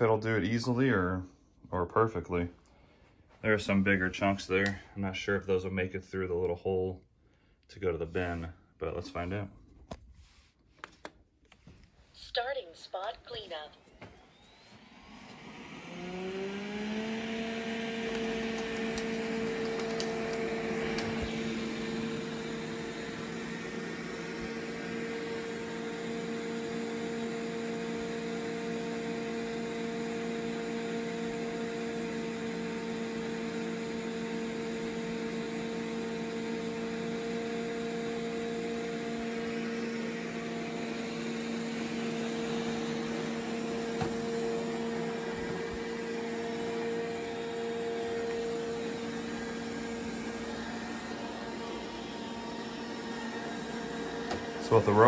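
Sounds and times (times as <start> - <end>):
robot vacuum whirring hum: 12.4 - 55.0.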